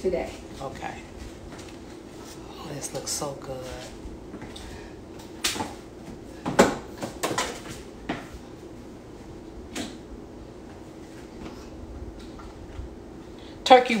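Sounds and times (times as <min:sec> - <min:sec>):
kitchen knocks and clunks: 0:06.4 - 0:07.6.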